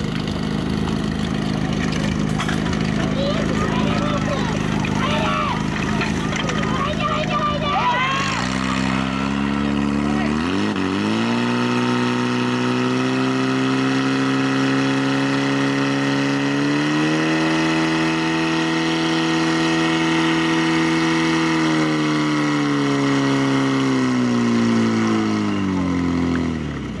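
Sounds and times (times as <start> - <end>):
fire pump engine at high revs: 0.0 - 27.0.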